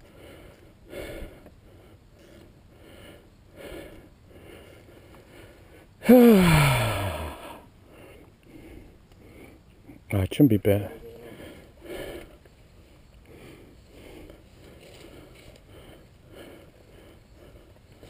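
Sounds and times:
man breathing hard: 0.0 - 10.1, 11.2 - 18.0
man groaning sigh: 6.0 - 7.7.

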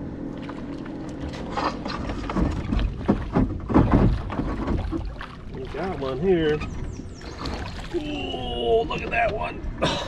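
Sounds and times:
water splashing: 0.3 - 9.6
knocks on boat: 1.9 - 7.9.

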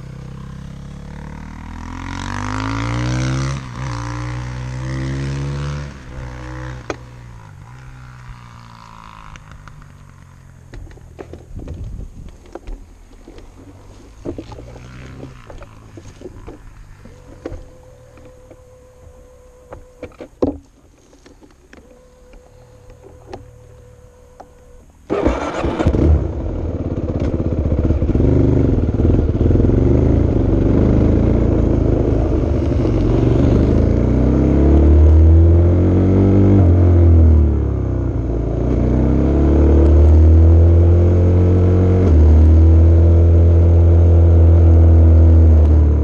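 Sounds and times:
engine starting and running: 21.0 - 35.2.

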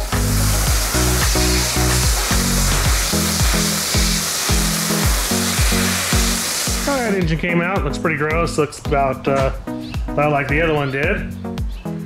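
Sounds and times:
loud even hiss: 0.0 - 7.2
upbeat background music: 0.0 - 12.0.

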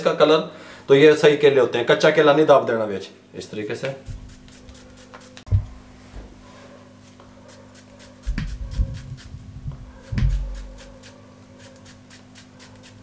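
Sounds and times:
knife slicing banana thumps: 10.0 - 10.8.

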